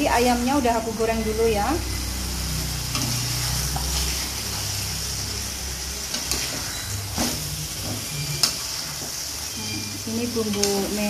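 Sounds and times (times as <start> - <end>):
food sizzling in a wok: 0.0 - 11.0
metal spatula stirring: 2.5 - 11.0.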